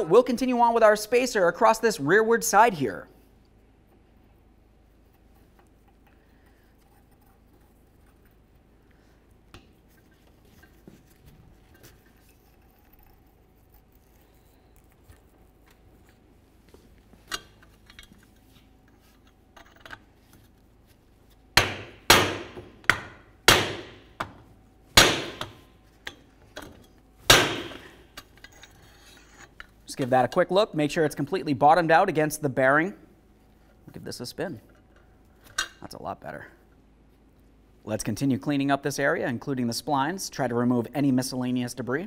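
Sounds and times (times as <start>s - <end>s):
hammer striking steel tube: 21.6s - 24.4s, 25.0s - 26.2s, 27.3s - 28.0s.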